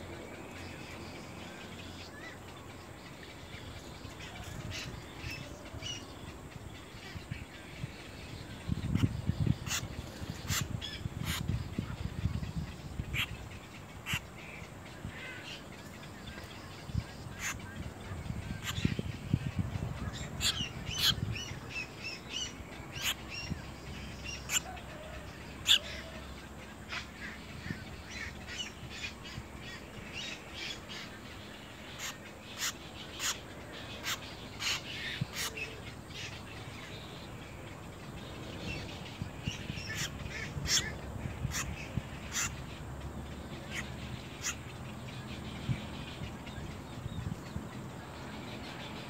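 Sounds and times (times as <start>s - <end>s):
egret nestlings calling harshly: 8.7s - 15.5s, 17.2s - 24.8s, 25.6s - 26.1s, 31.7s - 36.4s, 39.4s - 42.7s.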